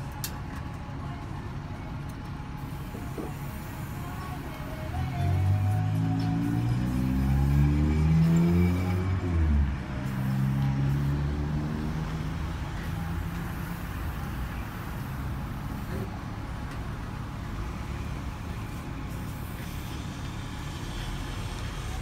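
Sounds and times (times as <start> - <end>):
road traffic rumble: 0.0 - 22.0
passing vehicle engine: 4.2 - 15.8.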